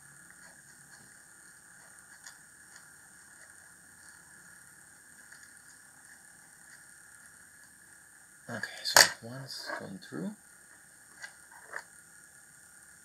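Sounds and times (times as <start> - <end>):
faint steady hiss: 0.0 - 13.0
small wire clicks and ticks: 0.2 - 4.2.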